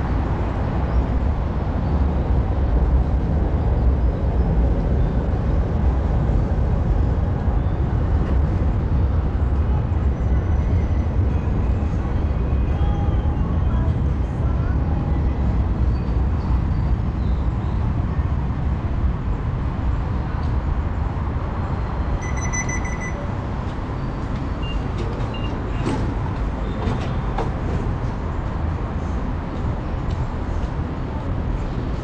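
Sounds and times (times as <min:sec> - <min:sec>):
low station rumble: 0:00.0 - 0:32.0
fare gate electronic beeps: 0:22.2 - 0:23.3.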